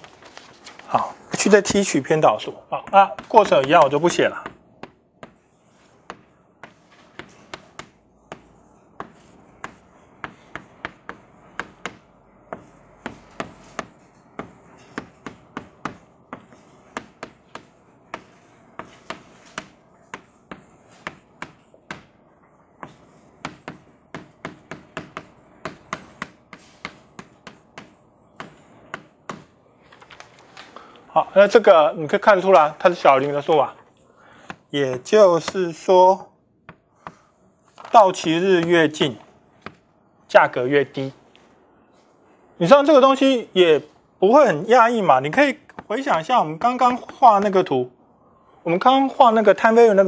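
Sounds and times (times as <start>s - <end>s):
chalk tapping and scraping on blackboard: 2.8s - 29.6s, 34.4s - 35.6s, 36.6s - 37.9s, 38.6s - 39.9s, 45.3s - 47.7s.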